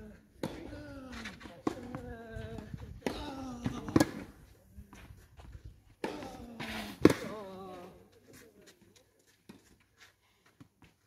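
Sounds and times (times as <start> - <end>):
tennis racket hitting ball: 3.0 - 4.3, 6.0 - 7.4.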